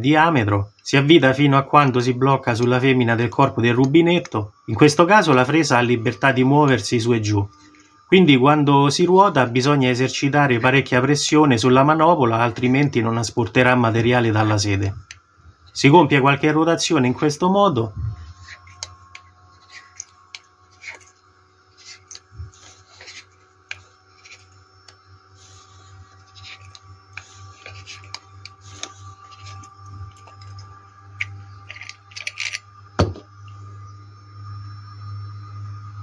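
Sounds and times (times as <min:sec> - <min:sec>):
valve seat cutter scraping metal: 0:14.0 - 0:32.8.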